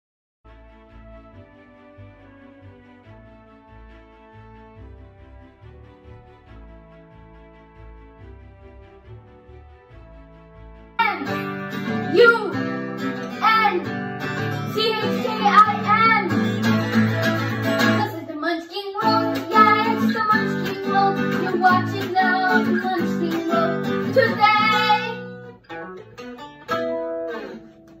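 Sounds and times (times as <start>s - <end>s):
guitar background music: 10.7s - 18.2s, 19.0s - 28.0s.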